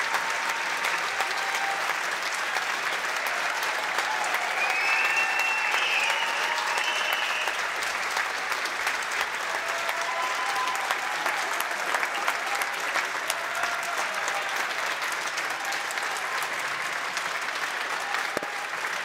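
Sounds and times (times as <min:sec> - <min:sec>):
audience applauding: 0:00.0 - 0:19.0
high-pitched whistle from crowd: 0:04.6 - 0:07.6.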